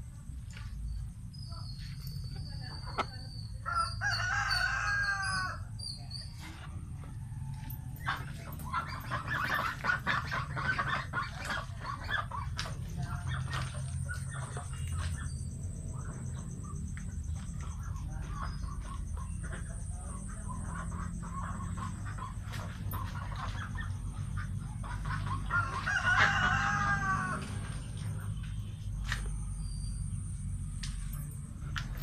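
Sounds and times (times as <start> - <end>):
chickens clucking and calling: 2.9 - 5.8, 6.4 - 28.2
rooster crowing: 3.6 - 5.7, 25.5 - 27.9
steady low rumble: 5.6 - 25.9.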